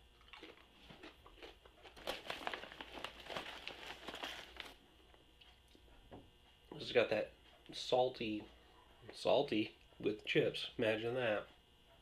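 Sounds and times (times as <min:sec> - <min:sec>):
chip bag crinkling: 0:00.2 - 0:04.8.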